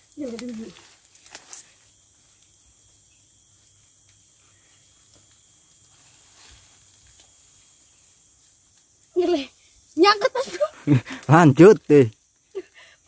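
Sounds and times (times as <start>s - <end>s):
high-pitched insect drone: 0.0s - 13.0s
soft rustles: 4.3s - 8.9s.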